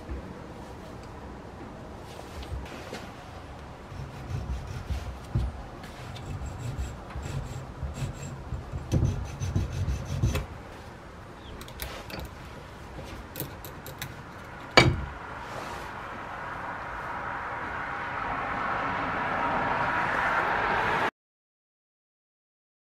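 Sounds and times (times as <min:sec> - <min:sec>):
file scraping metal: 0:03.8 - 0:10.6.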